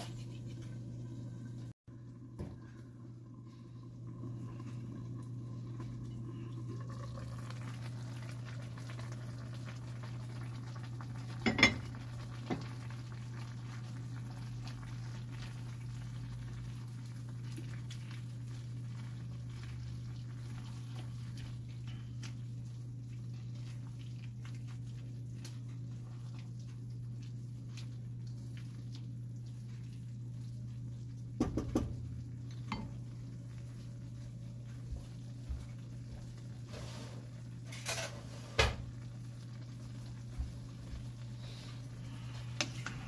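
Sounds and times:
food simmering: 0.1 - 43.0
wooden spatula scraping wok: 36.6 - 38.7
steady low hum: 39.8 - 43.0.

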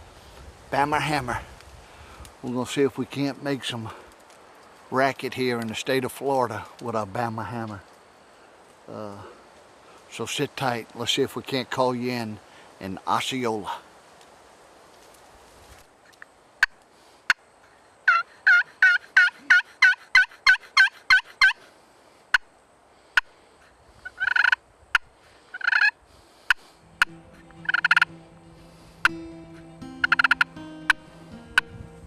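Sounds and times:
turkey call yelps: 18.0 - 21.6, 24.0 - 24.6, 25.5 - 26.0, 27.0 - 28.1, 30.0 - 30.5.

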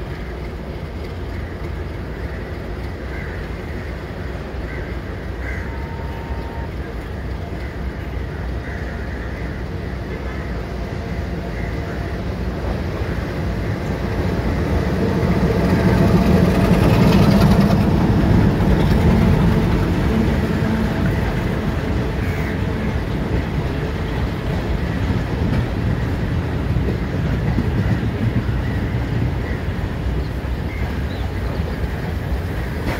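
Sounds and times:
diesel locomotive engine passing: 0.0 - 32.9
train wheels rumbling on rails: 0.0 - 32.9.

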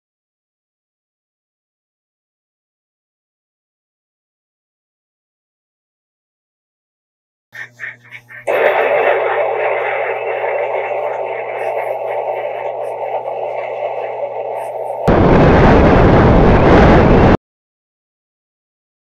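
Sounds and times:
wind buffeting microphone: 8.5 - 17.4.

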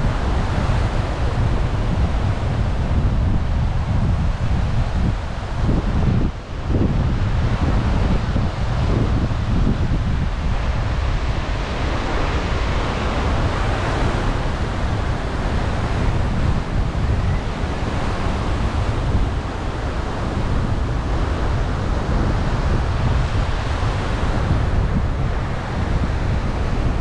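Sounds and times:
wind on microphone: 0.0 - 27.0.

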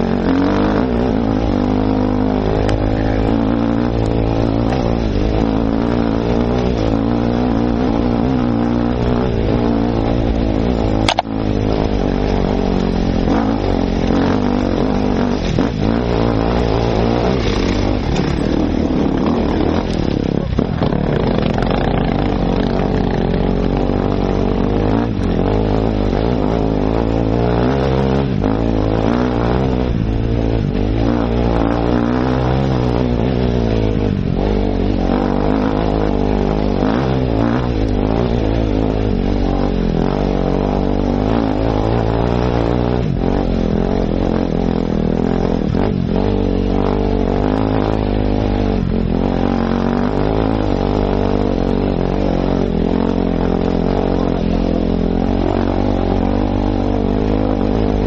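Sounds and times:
motorcycle engine running under load: 0.0 - 58.0
sharp knock: 11.1 - 11.3.

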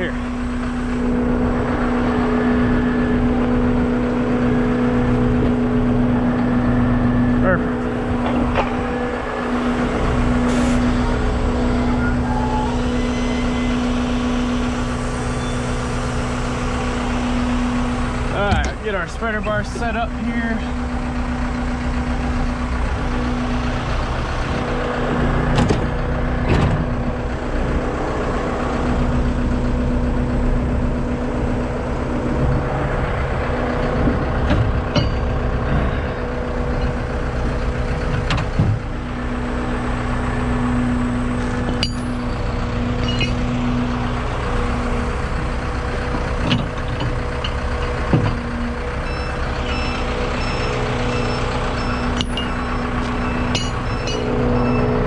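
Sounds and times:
diesel engine idling: 0.0 - 55.0
steel shackles clanking: 34.4 - 38.7, 41.4 - 43.8, 51.2 - 55.0.

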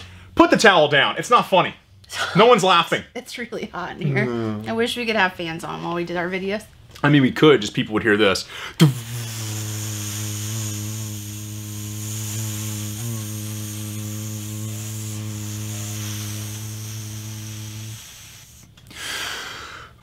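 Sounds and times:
man humming a low drone: 8.8 - 18.2.

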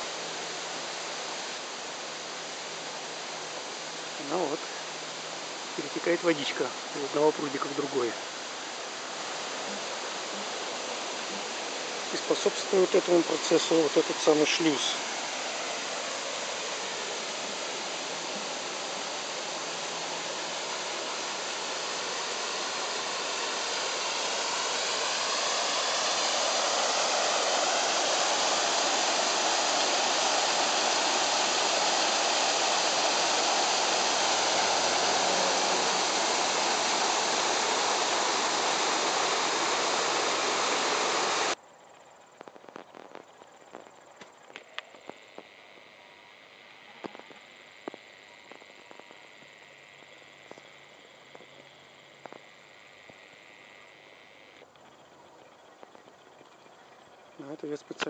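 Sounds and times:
water rushing over a wooden gate: 0.0 - 41.6.

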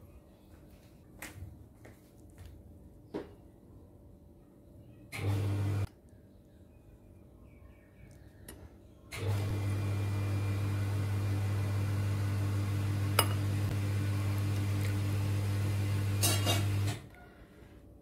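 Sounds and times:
electrical appliance hum: 5.0 - 6.1, 8.3 - 18.0.

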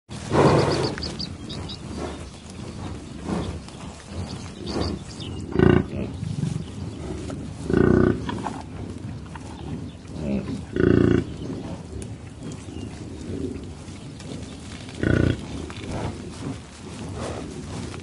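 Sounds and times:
grass chewing: 0.1 - 18.0
bison grunting low: 0.2 - 18.0.

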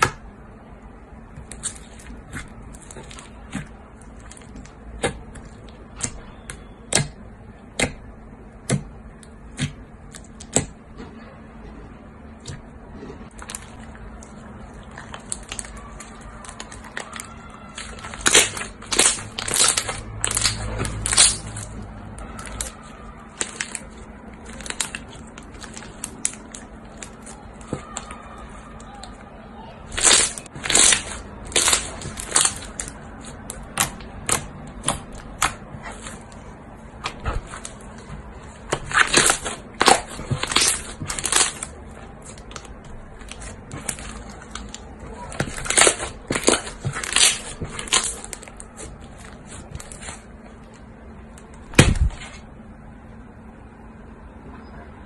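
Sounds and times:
slime crackling pops: 14.9 - 21.7, 30.0 - 36.2, 38.7 - 48.9.

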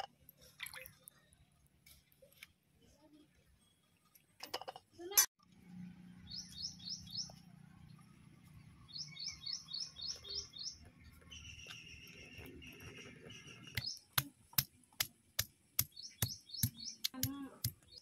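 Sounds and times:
songbird chirping: 5.7 - 14.6, 15.8 - 18.0.

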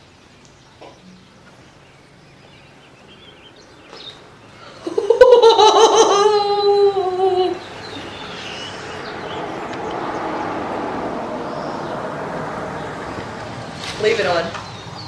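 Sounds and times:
person squealing laugh: 4.8 - 7.6.

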